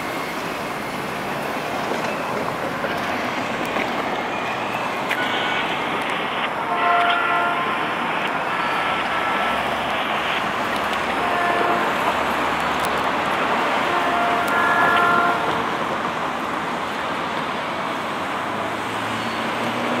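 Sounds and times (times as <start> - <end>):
freight cars rumbling on rails: 0.0 - 20.0
wheel squeals: 19.1 - 20.0.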